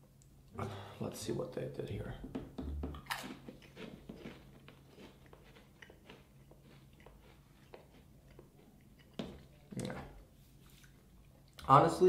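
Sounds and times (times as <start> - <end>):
crisp crunching bite: 3.0 - 8.1
chewing crunches: 3.0 - 10.1.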